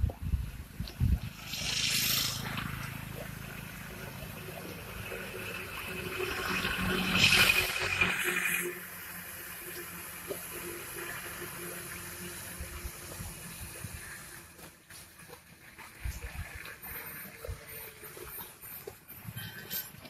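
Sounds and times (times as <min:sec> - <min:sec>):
vehicle passing on wet road: 0:01.3 - 0:14.4.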